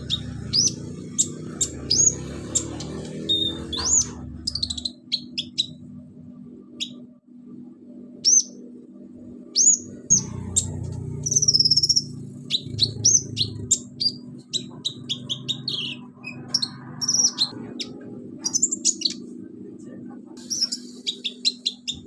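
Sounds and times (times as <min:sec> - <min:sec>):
bird singing sharp high chirps: 0:00.0 - 0:05.8, 0:08.2 - 0:08.6, 0:09.6 - 0:19.3, 0:20.4 - 0:22.0.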